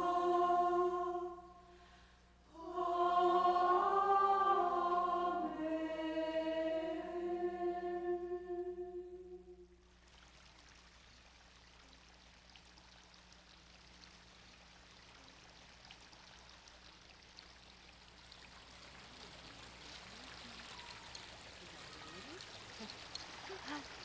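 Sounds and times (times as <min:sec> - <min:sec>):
water running in ditch: 0:09.8 - 0:24.0.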